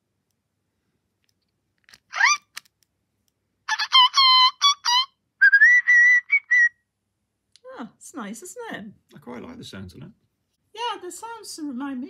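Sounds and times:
electronic toy bird chirps: 3.7 - 6.7.

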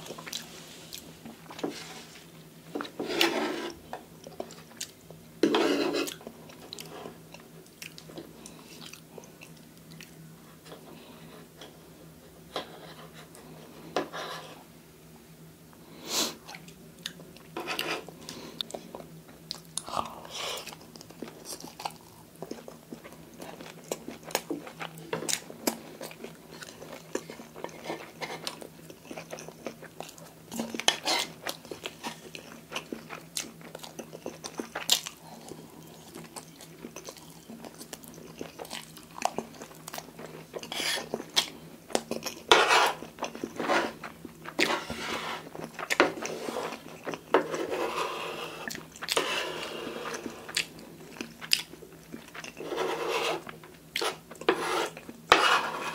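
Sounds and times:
cutlery scraping on wooden plate: 2.8 - 3.8, 5.4 - 6.2, 42.5 - 43.0, 43.6 - 44.0, 52.6 - 55.9
close chewing mouth sounds: 6.1 - 10.2, 18.3 - 44.7, 48.6 - 49.2, 50.0 - 52.7.

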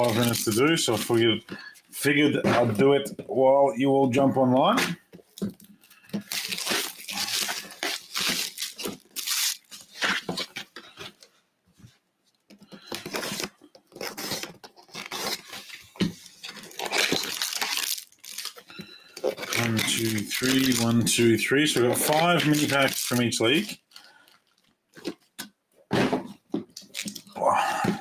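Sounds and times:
shrink-wrap tearing: 0.0 - 1.3, 5.7 - 11.2, 12.8 - 25.5, 26.7 - 27.4
cellophane crinkling: 0.0 - 1.4, 5.3 - 11.3, 12.7 - 25.5, 26.6 - 27.4.

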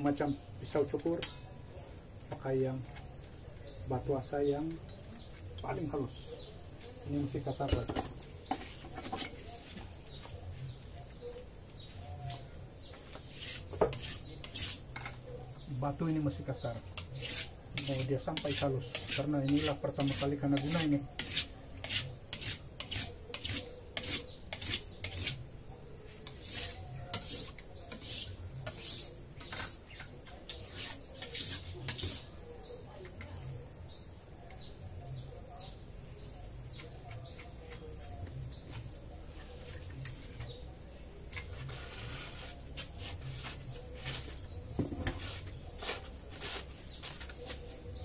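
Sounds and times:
blade scraping on whetstone: 13.0 - 14.9, 16.8 - 25.4, 26.1 - 32.3, 41.3 - 44.4, 45.1 - 47.6.

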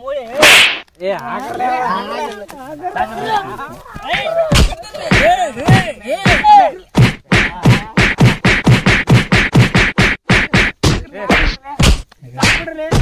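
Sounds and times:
punches and kicks hitting a body: 0.4 - 0.8, 4.5 - 13.0.

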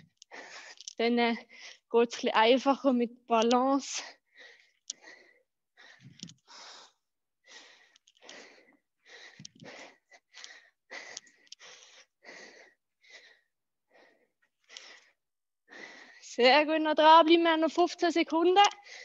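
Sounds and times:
woman breathing hard: 0.0 - 1.9, 4.0 - 16.3.

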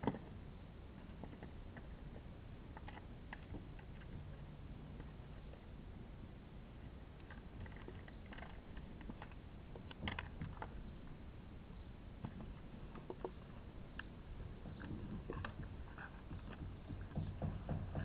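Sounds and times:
low steady rumble: 0.0 - 18.0
plastic pot tapping and scraping: 12.2 - 18.0.

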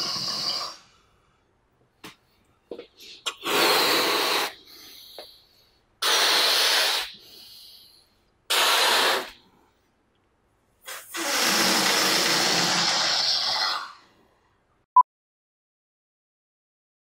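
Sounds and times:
balloon deflating with buzz: 0.0 - 0.8, 3.3 - 4.6, 6.0 - 7.4, 8.5 - 9.4, 10.8 - 14.1
breaths blown into balloon: 0.0 - 1.0, 3.2 - 5.3, 6.0 - 7.9, 8.5 - 9.4, 10.8 - 14.2.

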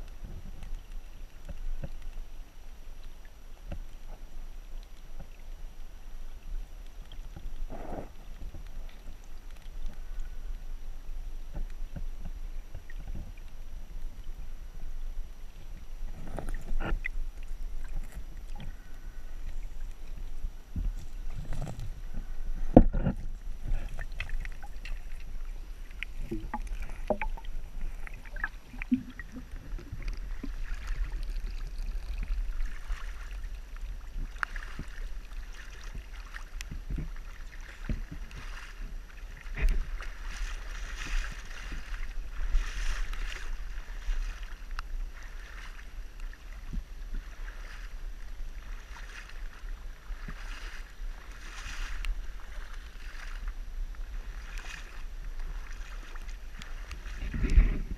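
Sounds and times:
underwater knocks and clicks: 0.2 - 2.2, 11.5 - 13.6, 16.1 - 32.9, 36.0 - 37.2
water sloshing and splashing: 6.4 - 57.9.

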